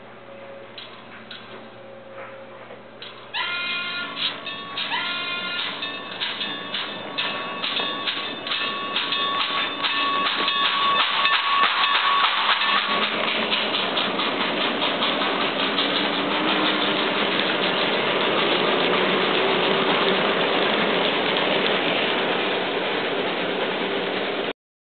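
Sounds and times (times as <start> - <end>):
synthesized steam locomotive chuffs: 3.3 - 24.5.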